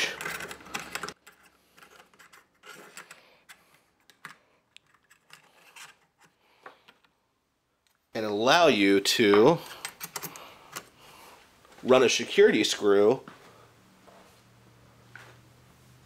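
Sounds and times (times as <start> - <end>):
metal clicks and scrapes: 0.0 - 7.1, 9.6 - 10.9.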